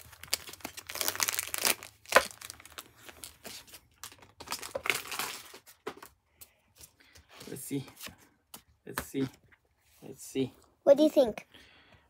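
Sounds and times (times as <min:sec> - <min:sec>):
foil wrapper crinkling: 0:00.0 - 0:05.7.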